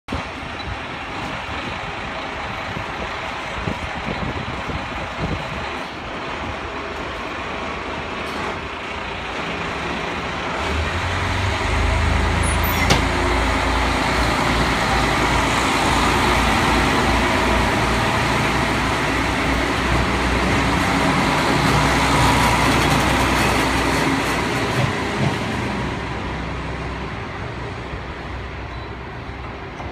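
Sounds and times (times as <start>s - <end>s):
diesel engine drone: 0.1s - 23.8s
train running noise: 0.1s - 29.9s.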